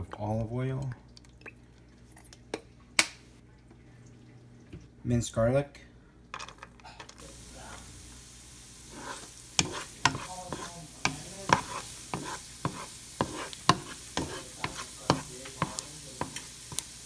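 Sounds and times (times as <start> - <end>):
garlic sizzling in oil: 7.2 - 17.0
utensil scraping a pan: 8.8 - 16.9.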